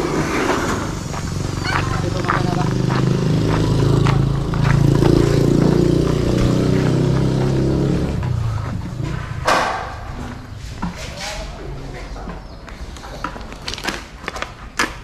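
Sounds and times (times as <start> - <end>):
loud rushing noise: 0.0 - 11.4.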